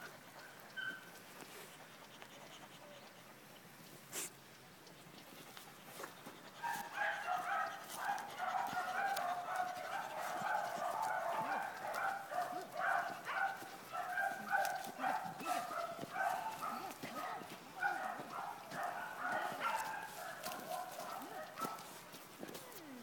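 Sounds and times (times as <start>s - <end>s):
dogs barking rapidly: 5.8s - 22.3s.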